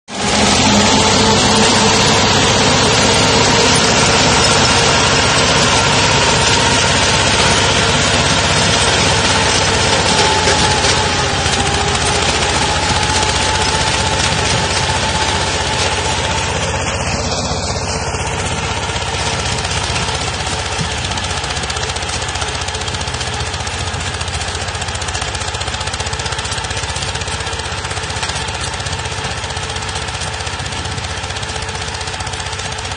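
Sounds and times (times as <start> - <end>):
mini tractor engine under load: 0.1 - 32.9.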